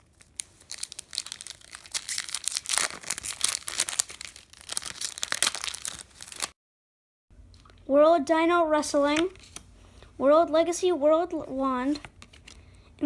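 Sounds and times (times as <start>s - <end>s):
foil wrapper tearing and crinkling: 0.0s - 6.6s.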